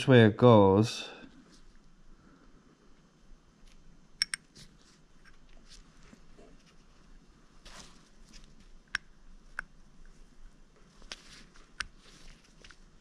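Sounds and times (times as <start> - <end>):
soft rustle: 1.2 - 2.0, 4.5 - 8.8, 9.8 - 13.0.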